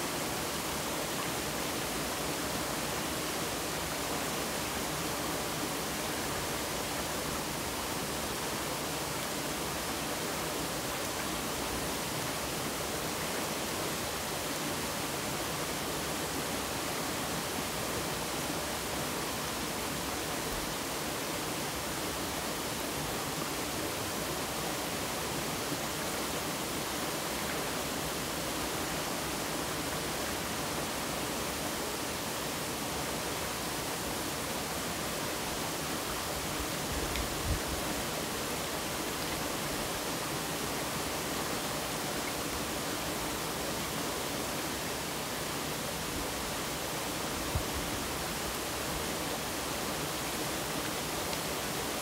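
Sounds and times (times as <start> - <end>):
stream flowing: 0.0 - 52.0.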